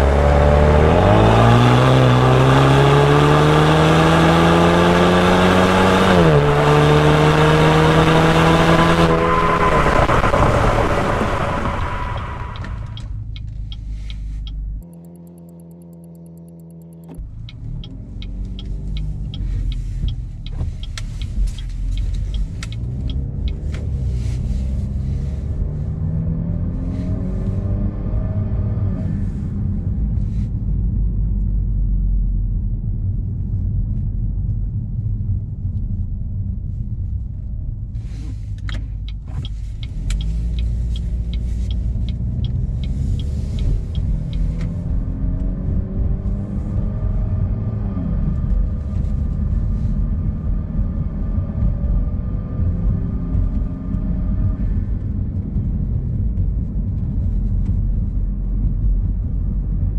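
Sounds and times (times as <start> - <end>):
car exhaust engine revving: 0.0 - 13.1, 39.0 - 50.4
even ticks: 12.6 - 23.8, 38.6 - 44.7.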